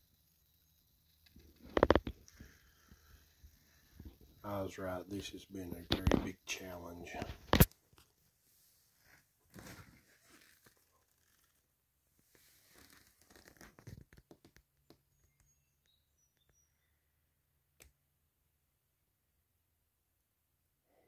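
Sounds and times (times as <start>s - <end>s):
faint rustling and scraping: 1.2s - 14.6s.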